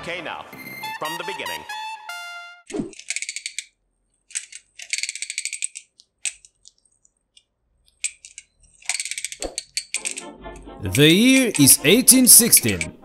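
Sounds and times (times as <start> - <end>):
small engine mechanism clattering: 3.0 - 7.1, 7.8 - 10.3
scattered clicks: 4.3 - 10.3, 10.9 - 13.0.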